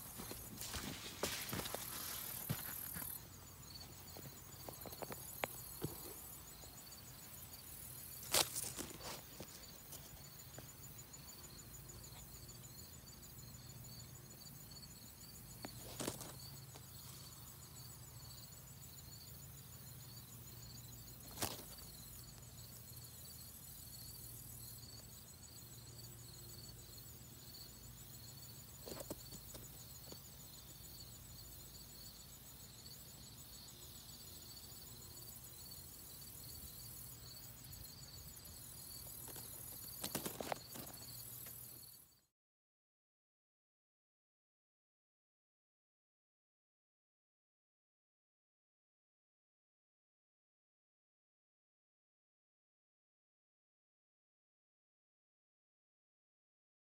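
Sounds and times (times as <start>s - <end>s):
insects trilling: 0.0s - 42.2s.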